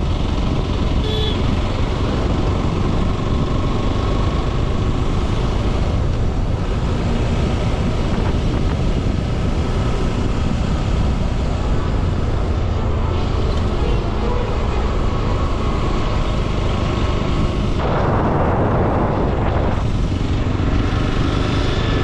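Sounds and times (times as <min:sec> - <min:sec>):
motorcycle engine running: 0:00.0 - 0:22.0
wind noise on microphone: 0:00.0 - 0:22.0.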